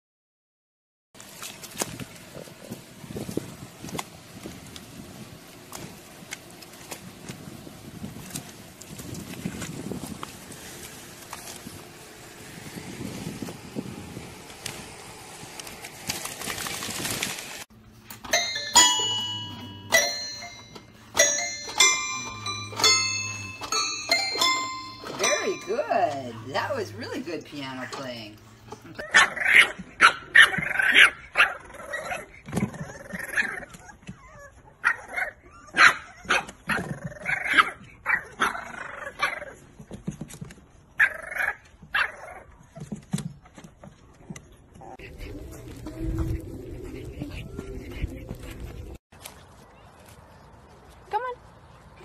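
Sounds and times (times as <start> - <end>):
toy piano notes: 18.2 - 28.2
puppies yapping and barking: 18.3 - 39.7, 40.9 - 43.7, 44.6 - 49.0.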